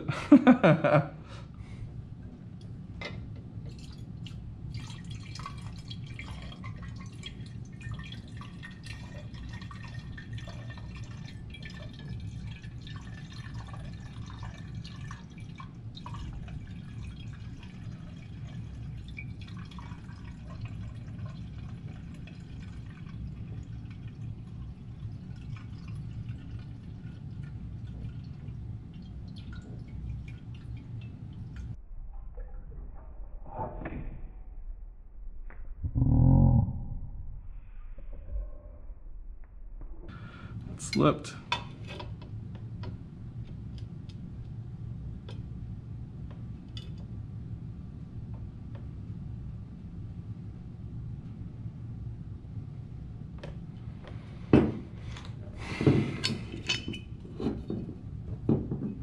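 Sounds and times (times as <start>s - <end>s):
whiskey pouring into decanter: 3.6s - 31.8s, 53.8s - 59.0s.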